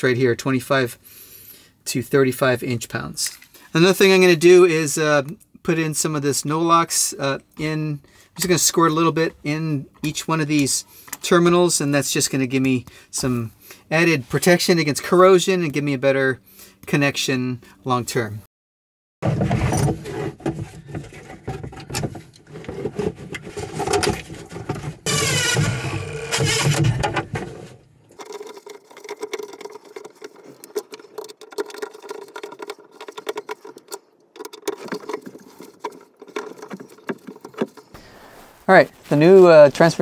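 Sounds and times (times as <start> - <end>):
tools clicking and rattling on metal box: 28.2 - 38.0.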